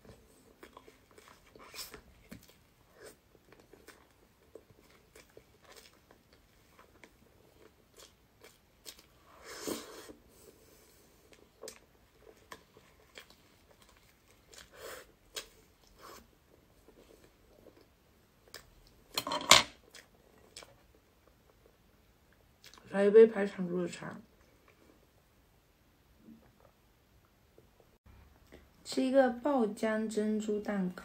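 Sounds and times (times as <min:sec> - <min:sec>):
wet chewing and lip clicks: 0:00.5 - 0:09.2, 0:11.2 - 0:16.0, 0:19.9 - 0:22.9.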